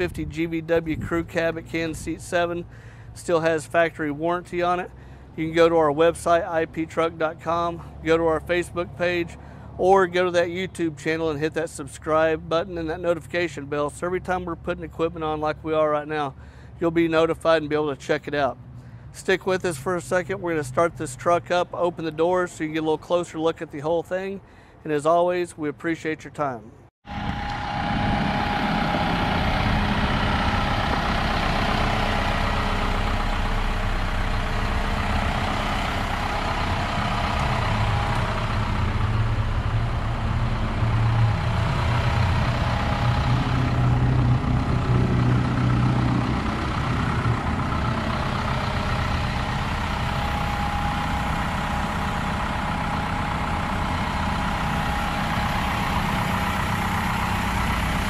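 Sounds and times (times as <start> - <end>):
truck engine idling: 0.0 - 17.8, 27.1 - 58.0
deep low hum: 27.1 - 58.0.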